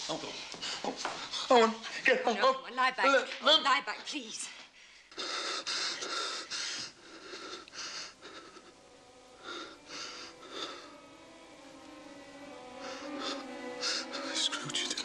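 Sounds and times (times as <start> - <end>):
man breathing hard in pain: 4.8 - 11.4.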